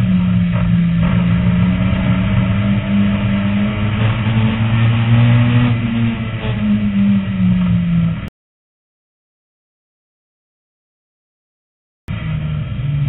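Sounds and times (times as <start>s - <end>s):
race car engine running hard: 0.0s - 8.3s, 12.1s - 13.0s.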